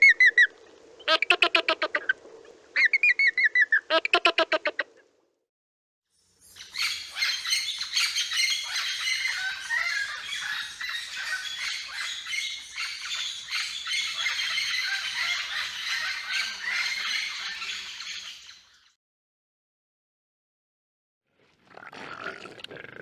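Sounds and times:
parrots squawking and chattering: 6.8s - 18.3s.

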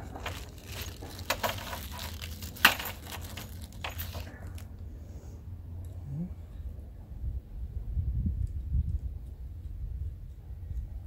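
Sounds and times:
rivet gun clicks and crackles: 0.0s - 4.7s.

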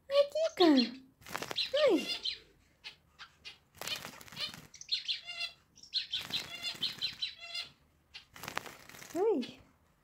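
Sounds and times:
bird splashing in water: 8.3s - 9.2s.

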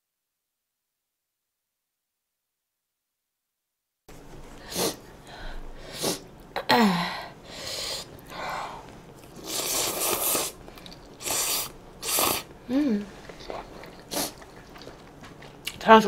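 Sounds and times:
woman slurping noodles: 9.4s - 10.6s, 11.2s - 12.5s, 13.4s - 14.4s.

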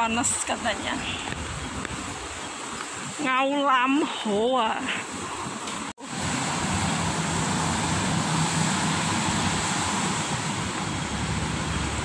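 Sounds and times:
traffic hiss on wet roads: 0.0s - 12.0s
low engine hum: 6.0s - 12.0s.

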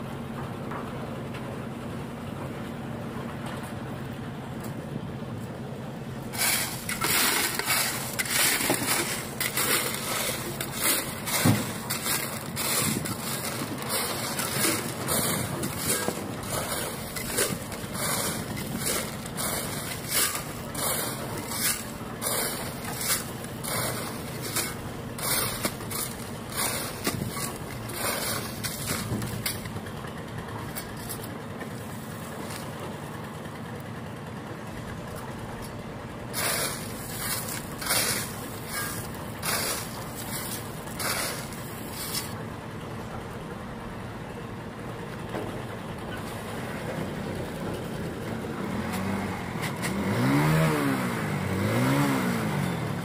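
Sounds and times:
gravel rattling into metal wheelbarrow: 6.2s - 33.2s, 35.2s - 42.4s
shovel scraping crushed stone: 6.3s - 29.8s, 30.7s - 32.7s, 36.3s - 42.4s.

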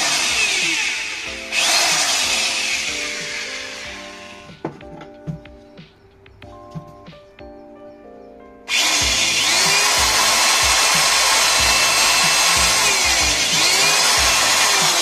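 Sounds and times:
electric drill boring wood: 0.0s - 4.5s, 8.7s - 15.0s.

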